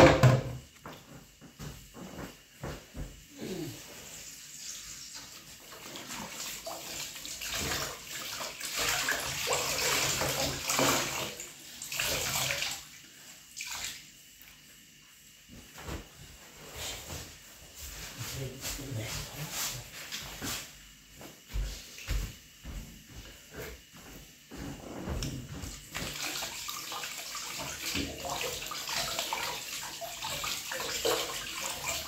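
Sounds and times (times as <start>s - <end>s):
water running and splashing: 25.8s - 32.0s.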